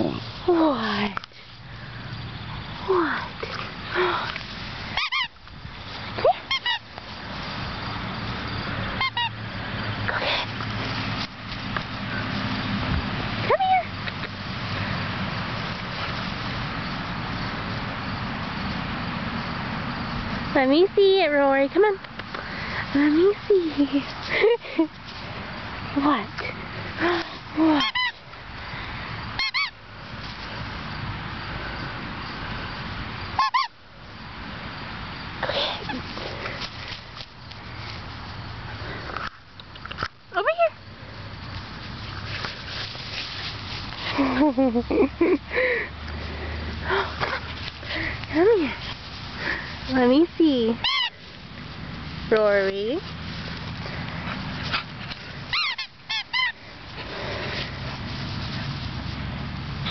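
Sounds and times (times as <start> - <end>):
puppy yipping: 55.5 - 56.5.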